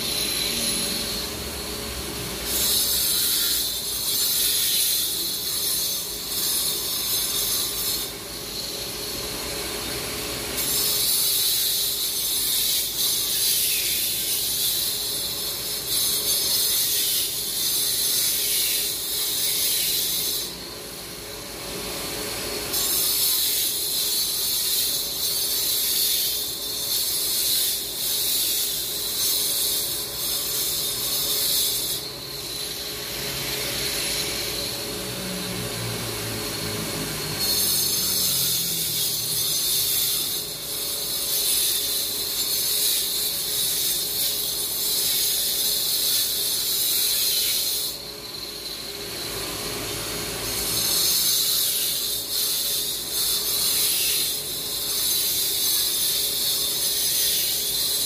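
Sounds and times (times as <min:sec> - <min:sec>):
power cutter grinding asphalt: 0:31.7 - 0:58.0.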